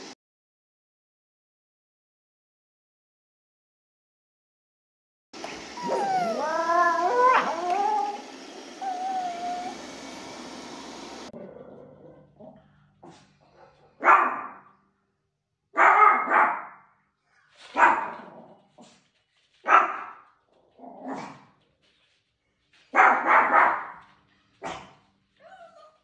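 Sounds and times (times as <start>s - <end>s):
small dog barking: 5.8s - 8.2s, 14.0s - 14.7s, 15.8s - 16.8s, 17.7s - 18.4s, 19.7s - 20.2s, 22.9s - 24.0s, 24.6s - 25.9s.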